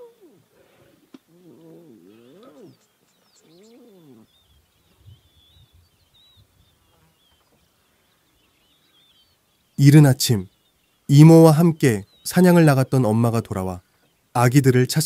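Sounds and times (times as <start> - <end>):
lion cubs mewing: 0.0 - 4.4
faint high bird chirps: 1.2 - 14.3.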